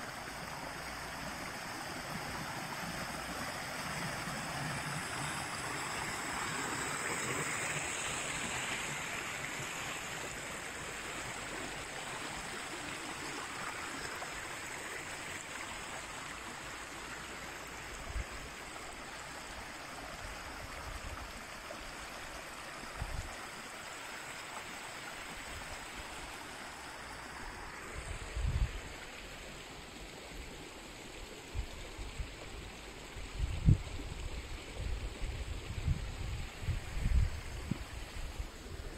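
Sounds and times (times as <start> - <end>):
brook splashing over stones: 0.0 - 20.6.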